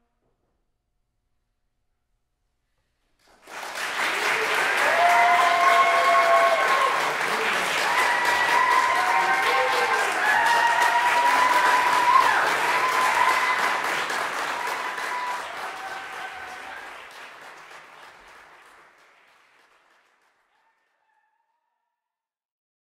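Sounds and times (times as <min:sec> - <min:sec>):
audience applauding: 0:03.2 - 0:21.3
high cheers: 0:03.6 - 0:18.6, 0:20.5 - 0:21.6.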